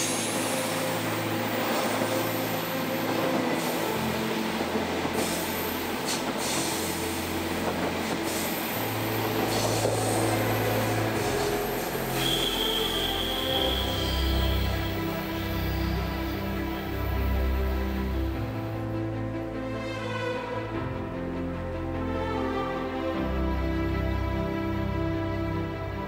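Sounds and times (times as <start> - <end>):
train coaches rolling past: 0.0 - 19.0.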